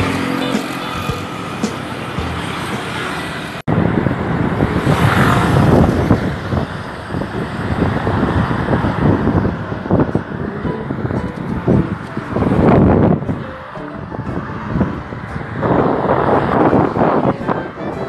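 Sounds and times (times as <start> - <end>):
road traffic: 0.0 - 18.0
wind buffeting microphone: 3.7 - 18.0.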